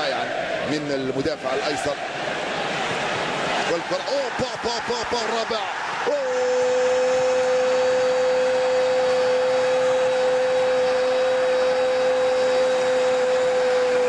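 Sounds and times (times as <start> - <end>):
crowd cheering: 0.0 - 14.0
commentator shouting: 3.7 - 7.9.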